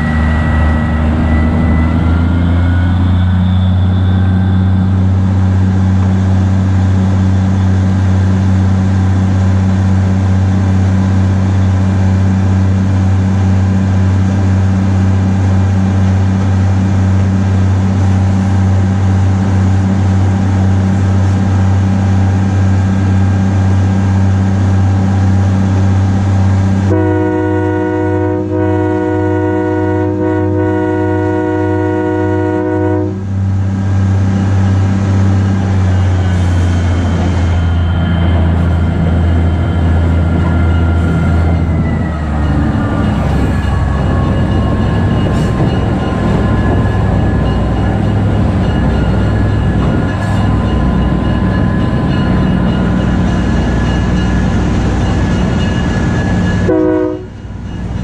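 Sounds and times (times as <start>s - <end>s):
diesel locomotive engine droning: 0.0s - 58.0s
locomotive horn blast: 26.9s - 33.4s, 56.6s - 57.5s.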